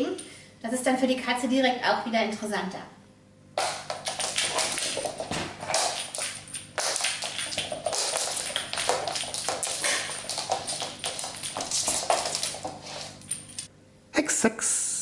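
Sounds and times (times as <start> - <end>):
cat paws scrambling on floor: 3.6 - 13.7
toy dragging over floor: 7.3 - 13.7.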